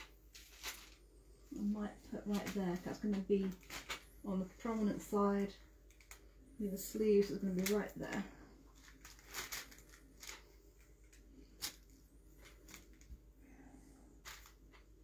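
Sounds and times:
fabric rustling: 0:00.0 - 0:06.2, 0:07.5 - 0:13.1.

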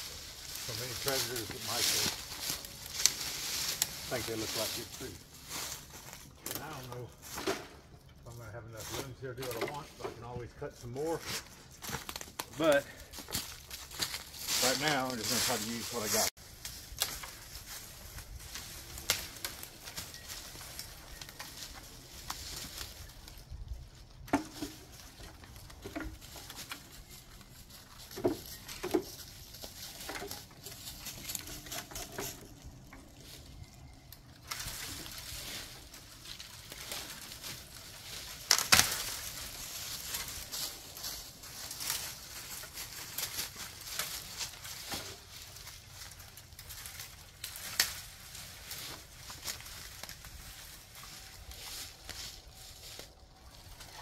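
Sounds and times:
limbs dragged through dead leaves: 0:00.0 - 0:06.1, 0:13.9 - 0:16.8
footsteps in dry leaves: 0:00.0 - 0:07.4, 0:08.3 - 0:54.0
branches crackling and snapping: 0:00.0 - 0:10.0, 0:11.0 - 0:54.0.

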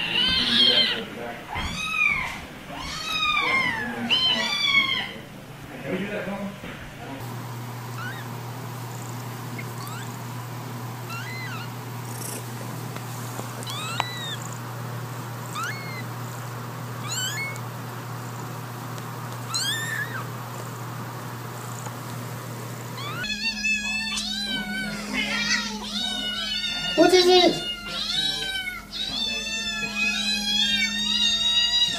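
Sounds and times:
cats meowing loudly: 0:00.0 - 0:05.2, 0:07.9 - 0:08.3, 0:09.6 - 0:10.2, 0:11.1 - 0:12.4, 0:13.6 - 0:14.6, 0:15.4 - 0:16.2, 0:17.0 - 0:17.7, 0:19.4 - 0:20.3, 0:23.0 - 0:31.9
kitten mewing: 0:00.0 - 0:05.2, 0:07.9 - 0:08.3, 0:08.9 - 0:10.4, 0:11.0 - 0:12.6, 0:13.2 - 0:14.7, 0:15.4 - 0:18.5, 0:19.4 - 0:20.3, 0:23.0 - 0:31.9
steady low hum: 0:00.0 - 0:31.9.

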